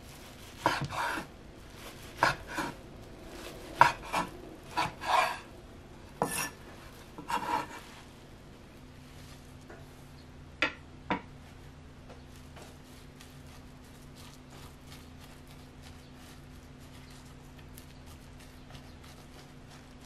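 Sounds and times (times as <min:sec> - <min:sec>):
steady low hum: 0:00.0 - 0:20.0
wooden utensil tapping and scraping: 0:06.2 - 0:06.5.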